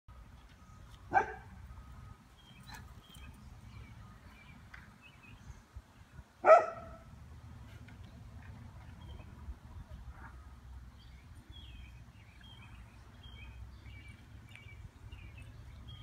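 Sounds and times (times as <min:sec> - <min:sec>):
dog barking: 0:01.1 - 0:01.5, 0:06.4 - 0:07.0.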